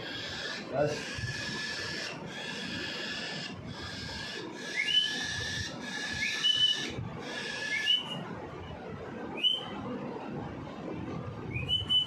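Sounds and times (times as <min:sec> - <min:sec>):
cockatiel chick raspy begging calls: 0:00.0 - 0:08.0.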